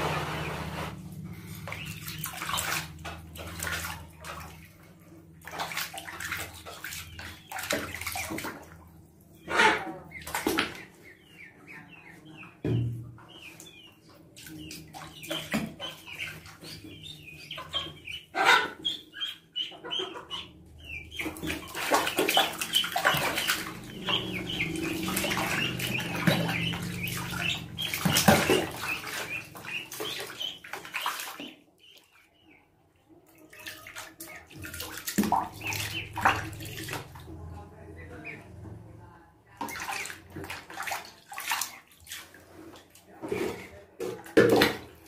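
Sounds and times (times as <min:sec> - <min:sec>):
water splashing in plastic basin: 0:01.1 - 0:11.4, 0:12.6 - 0:18.1, 0:20.8 - 0:32.2, 0:33.4 - 0:37.5, 0:39.4 - 0:45.0
duckling peeping: 0:01.4 - 0:02.8, 0:06.3 - 0:08.6, 0:09.4 - 0:32.7, 0:33.6 - 0:37.0, 0:38.0 - 0:38.5.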